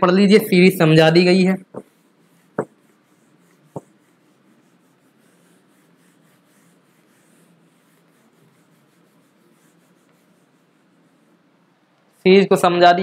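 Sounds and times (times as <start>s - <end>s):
cloth rubbing whiteboard: 0.9s - 12.4s.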